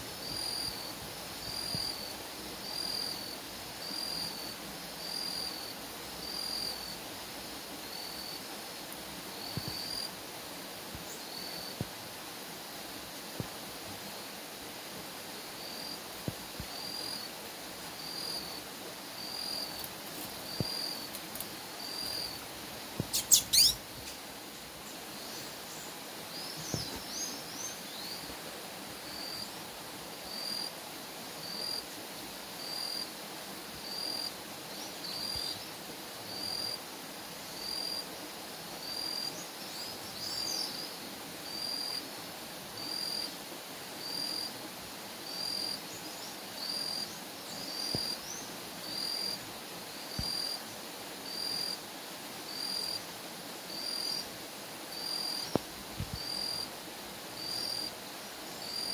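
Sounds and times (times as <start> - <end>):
short bird chirps: 23.1 - 23.8.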